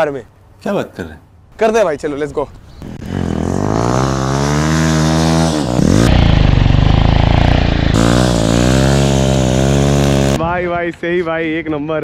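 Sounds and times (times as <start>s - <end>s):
motorcycle engine revving: 2.8s - 10.4s.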